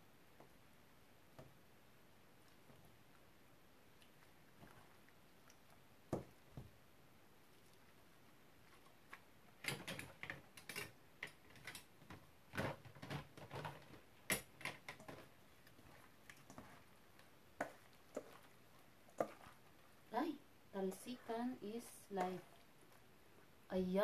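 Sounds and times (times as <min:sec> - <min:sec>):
wet squishes of mixing cabbage: 0:02.3 - 0:06.5, 0:14.8 - 0:23.7.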